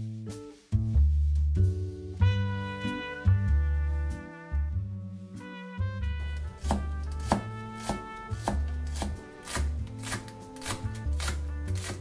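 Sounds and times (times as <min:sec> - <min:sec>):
soft background music: 0:00.0 - 0:12.0
knife chopping on cutting board: 0:06.4 - 0:12.0.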